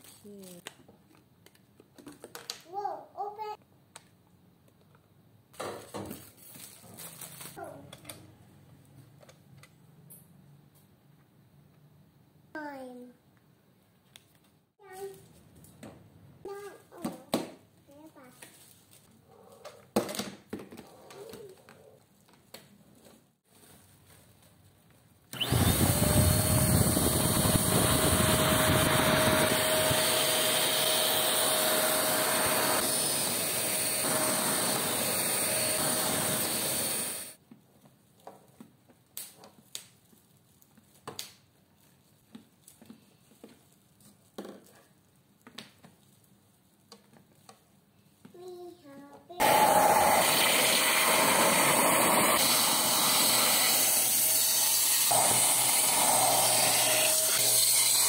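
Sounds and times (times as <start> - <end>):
vacuum cleaner whining: 25.3 - 37.4, 49.4 - 58.0.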